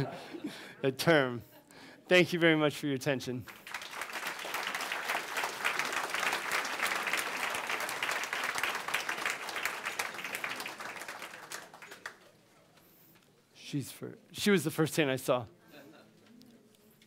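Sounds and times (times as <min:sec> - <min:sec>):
audience applauding: 0:03.5 - 0:12.4.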